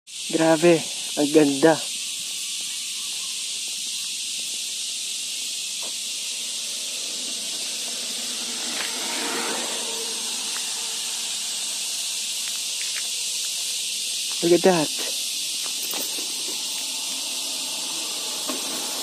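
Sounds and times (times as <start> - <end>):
insect chorus: 0.1 - 19.0
low rushing noise: 5.1 - 13.4, 15.2 - 19.0.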